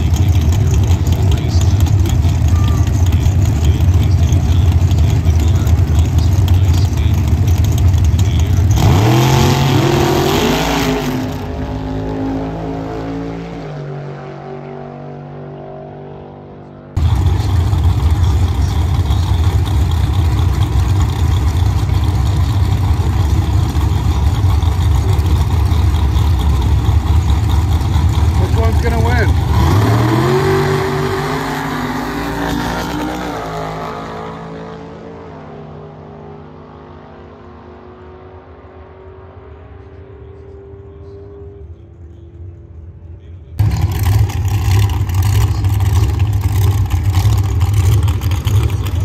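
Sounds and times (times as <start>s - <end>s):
drag racing car accelerating: 0.0s - 49.0s
loud low rumble: 16.9s - 31.4s, 41.0s - 49.0s.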